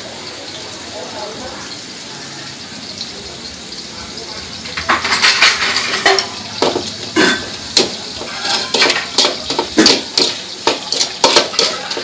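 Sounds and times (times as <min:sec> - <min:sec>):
food sizzling: 0:00.0 - 0:12.0
metal ladle scraping a wok: 0:04.6 - 0:12.0.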